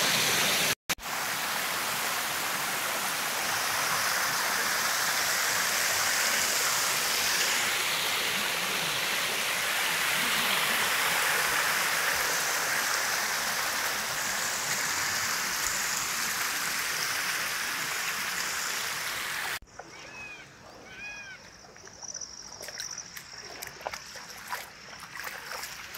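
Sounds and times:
water spilling over a weir: 22.6s - 25.9s.

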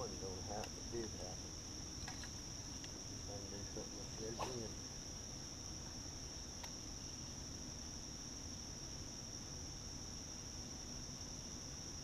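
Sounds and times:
high-pitched insect chorus: 0.0s - 12.0s
faint ticks: 0.5s - 1.1s, 2.0s - 3.0s, 6.6s - 6.8s.

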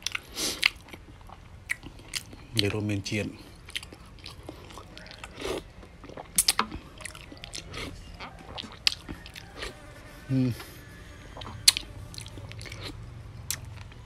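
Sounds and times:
lip smacks and chewing: 0.0s - 2.7s, 3.6s - 9.8s, 11.4s - 14.0s
person humming: 10.2s - 10.8s.

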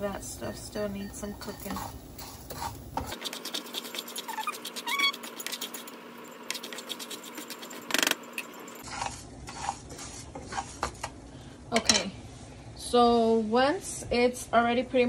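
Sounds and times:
rice rattling and scraping in pan: 1.4s - 11.1s.

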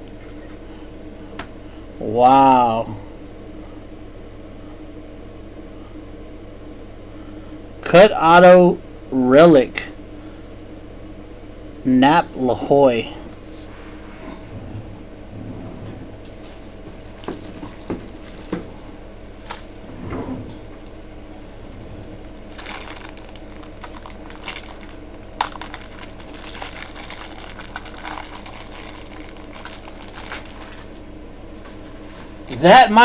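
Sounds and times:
low room hum: 0.0s - 33.0s
trading cards and plastic rustling: 22.5s - 32.4s.

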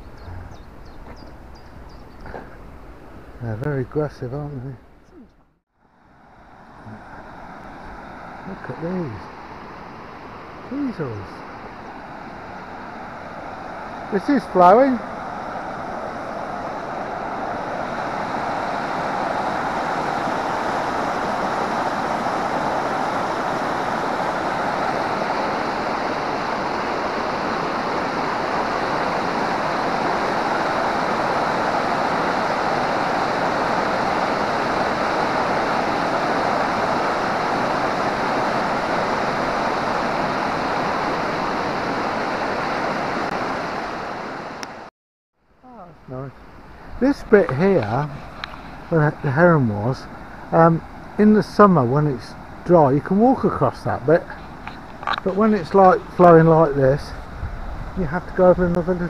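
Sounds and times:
river water rushing over weir: 5.9s - 44.9s.

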